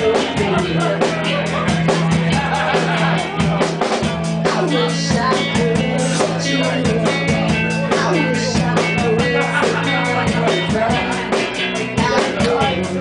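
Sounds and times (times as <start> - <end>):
drums: 0.0 - 13.0
electric guitar: 0.0 - 13.0
woman singing into a microphone: 4.5 - 7.2.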